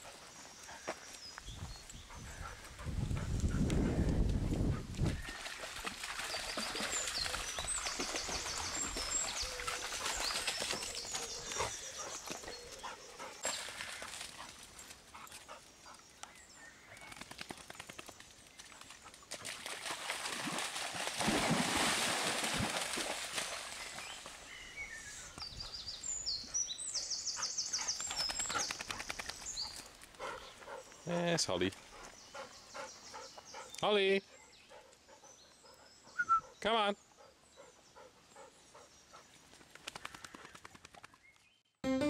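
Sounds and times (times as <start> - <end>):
dogs splashing in stream: 5.0 - 15.4, 17.0 - 25.4.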